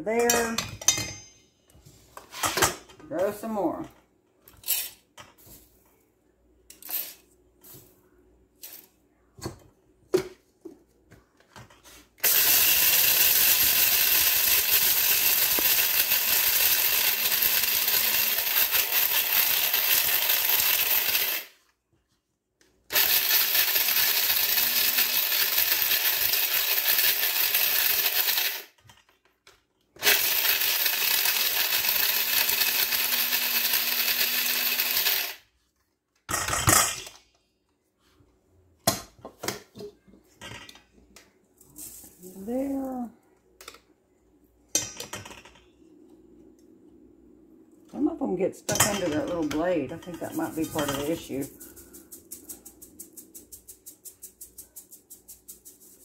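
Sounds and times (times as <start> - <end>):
electric coffee grinder grinding corn: 12.2 - 21.6, 22.9 - 28.8, 30.0 - 35.5, 48.9 - 52.8.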